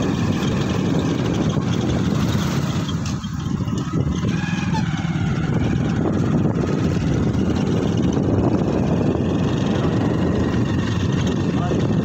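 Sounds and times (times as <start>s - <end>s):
motorcycle engine rumble: 0.0s - 12.0s
wind on microphone: 0.0s - 12.0s.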